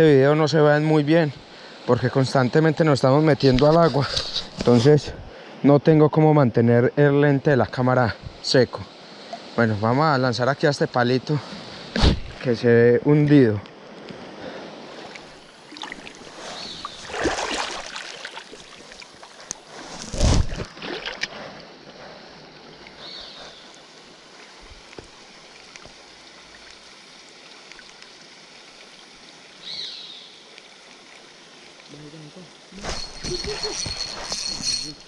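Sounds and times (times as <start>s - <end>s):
shallow river water running: 0.0s - 35.0s
sudden rushes of water: 14.4s - 21.6s.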